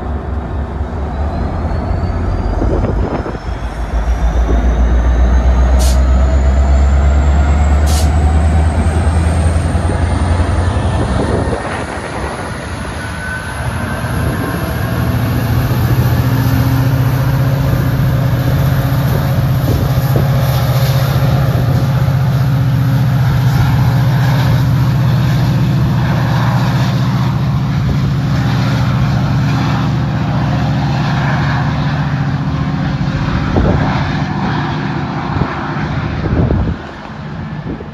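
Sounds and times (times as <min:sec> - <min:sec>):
high whine rising in pitch: 0:00.0 - 0:37.4
diesel locomotive engine: 0:00.0 - 0:37.9.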